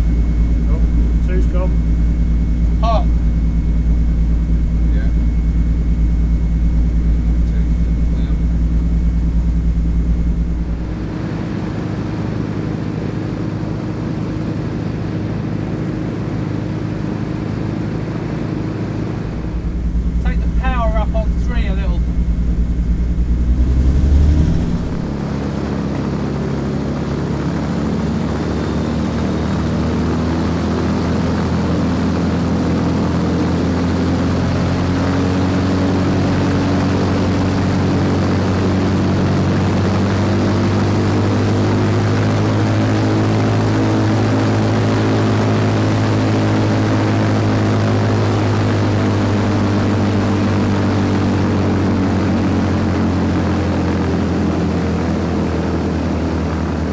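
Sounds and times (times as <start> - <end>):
propeller aircraft engines droning: 0.0 - 56.9.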